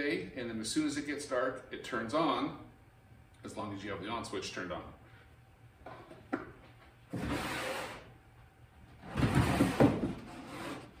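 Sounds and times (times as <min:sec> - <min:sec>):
wood scraping on wood: 0:09.1 - 0:11.0.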